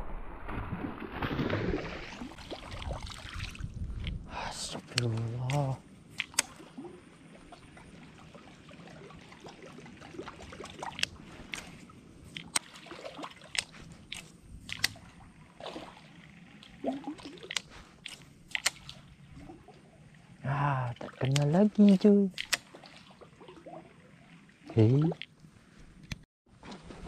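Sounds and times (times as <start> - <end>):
water sloshing and trickling: 0.0 - 27.0
sharp clicks: 4.9 - 6.6, 13.6 - 15.0, 17.5 - 18.9, 22.3 - 22.7.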